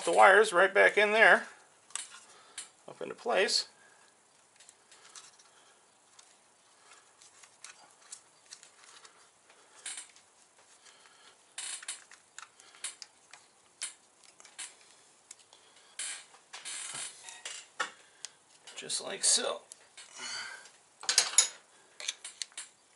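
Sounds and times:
hands clicking and tapping wiring: 1.9s - 2.8s, 4.0s - 16.7s, 17.4s - 22.9s.

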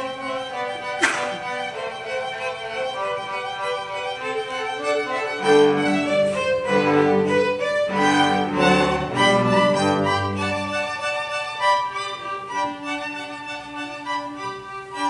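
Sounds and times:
violins playing: 0.0s - 15.0s.

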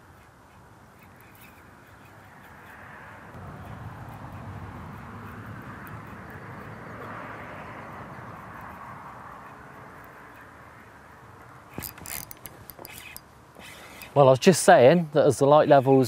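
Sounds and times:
outdoor background hiss: 0.0s - 16.0s
sharp clicks: 11.8s - 13.3s.

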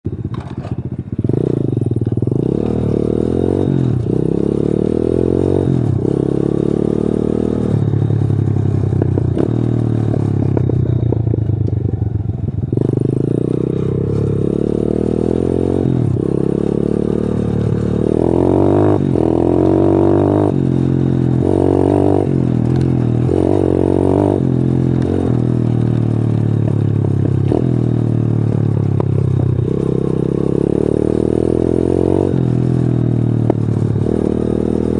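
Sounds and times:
motorbike engine revving: 0.1s - 34.9s.

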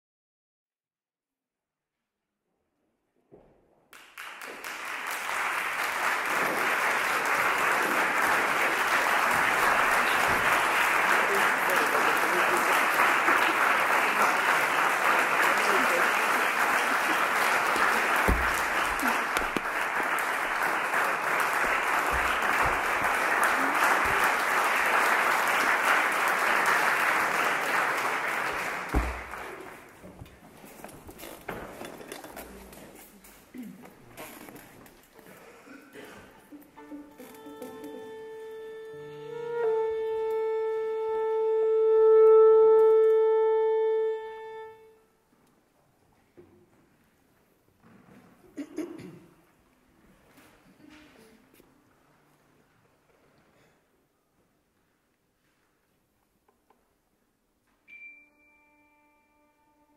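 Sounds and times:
audience applause: 3.9s - 30.1s, 36.5s - 38.6s.

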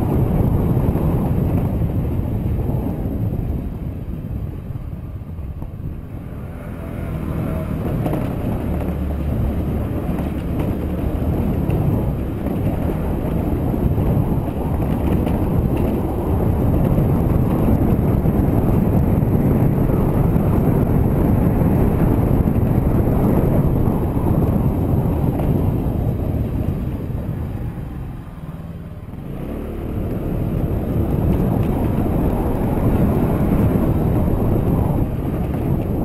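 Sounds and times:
motorcycle engine running: 0.0s - 36.0s
wind buffeting microphone: 0.0s - 36.0s.

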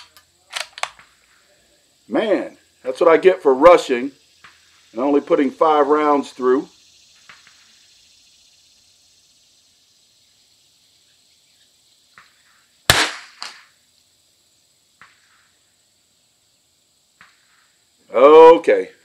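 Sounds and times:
quieter second crack: 12.1s - 13.8s
rifle shot: 12.9s - 13.7s.

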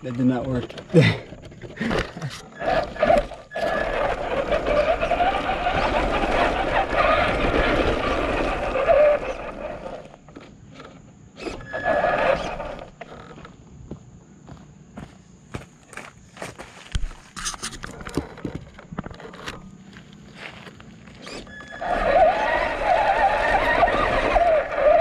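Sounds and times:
tyres crunching over stones: 0.0s - 10.7s, 15.0s - 25.0s
electric motor whining: 2.0s - 13.4s, 21.1s - 25.0s.

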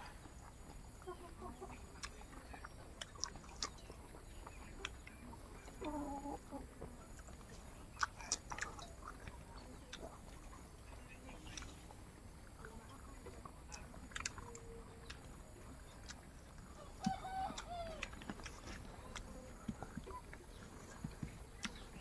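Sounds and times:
chewing food: 0.0s - 22.0s
chicken clucking: 0.0s - 22.0s
wet mouth clicks: 2.0s - 3.8s, 7.9s - 10.4s, 13.7s - 15.3s, 16.0s - 16.3s, 17.0s - 20.4s, 21.0s - 22.0s
crunching bites of cucumber: 16.0s - 20.1s.

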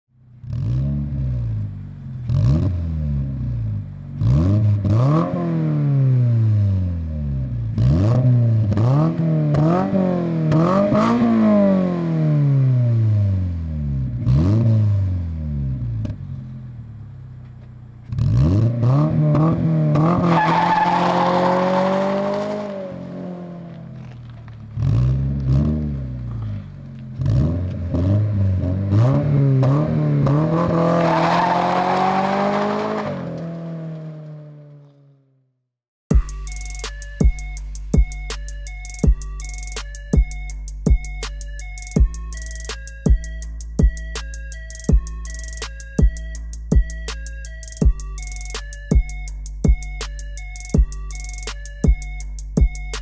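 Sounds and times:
sports car engine revving: 0.2s - 34.9s
tyre squeal: 20.0s - 22.7s
exhaust pops: 23.6s - 28.0s.

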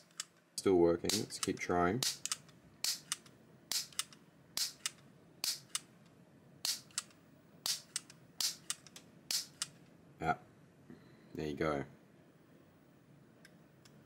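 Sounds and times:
piezo igniter snapping: 1.0s - 5.8s.

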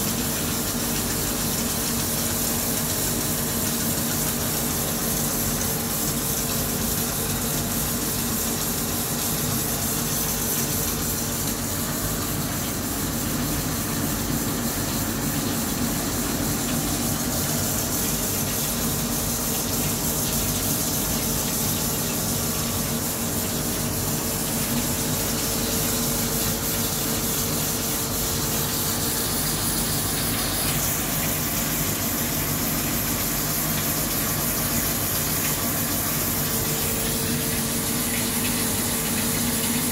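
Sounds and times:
coolant gushing and splashing: 0.0s - 39.9s.

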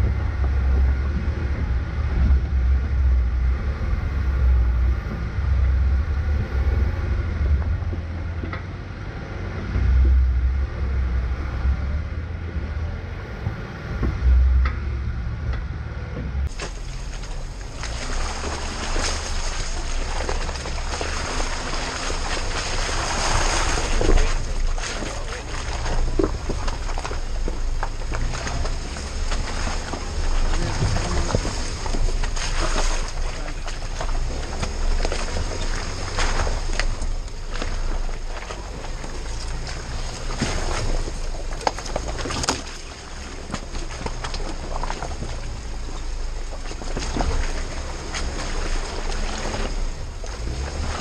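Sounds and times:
wind noise on microphone: 0.0s - 33.2s
low engine rumble: 0.0s - 51.0s
tyres crunching over rocks: 16.4s - 51.0s
tyres splashing through water: 16.4s - 51.0s.

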